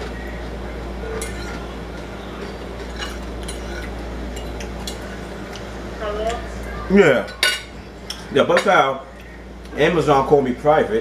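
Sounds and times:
low background hum: 0.0 - 11.0
fork clinking on ceramic plate: 1.2 - 1.7, 2.8 - 5.0.

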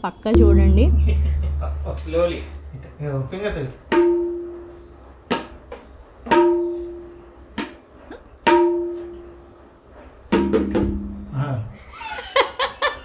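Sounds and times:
tabla strokes: 0.4 - 5.6, 6.3 - 7.2.

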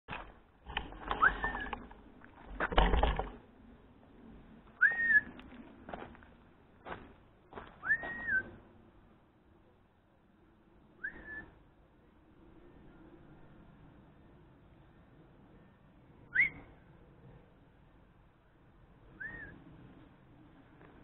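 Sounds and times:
person whistling a call: 4.8 - 5.2, 7.8 - 8.5, 11.0 - 11.5, 16.3 - 16.6.

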